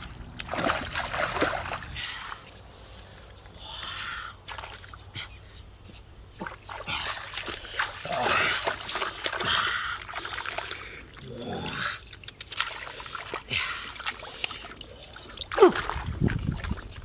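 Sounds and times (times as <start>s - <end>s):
hands splashing in muddy water: 0.0s - 2.4s, 6.4s - 17.0s.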